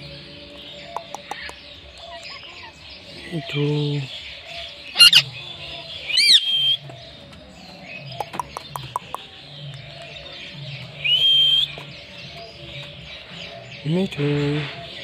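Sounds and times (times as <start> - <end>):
parrot screech: 5.0 - 5.2
parrot rising whistled call: 6.1 - 6.8.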